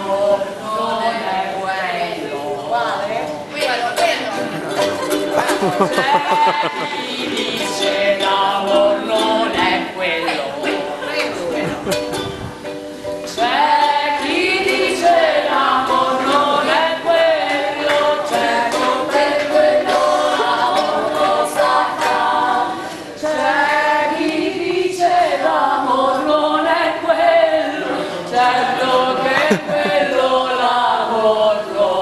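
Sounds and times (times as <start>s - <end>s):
women singing together: 0.0s - 32.0s.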